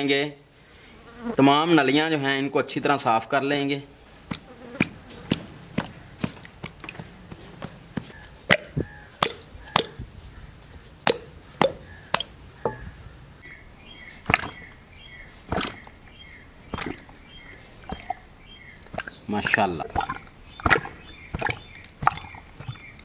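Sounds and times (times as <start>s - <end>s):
bones knocking on metal pot: 4.2s - 10.2s, 10.9s - 13.1s.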